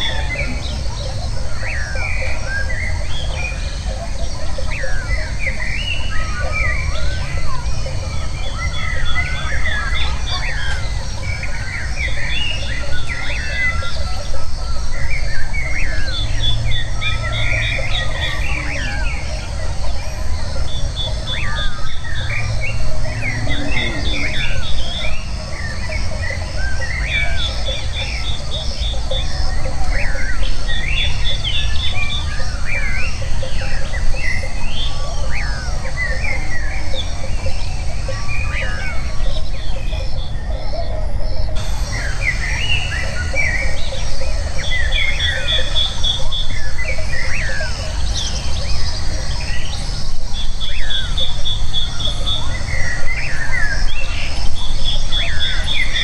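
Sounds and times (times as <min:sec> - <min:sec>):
birds chirping and whistling: 0:00.0 - 0:56.0
rapid bird trill: 0:00.0 - 0:56.0
steady low rumble: 0:20.7 - 0:26.7.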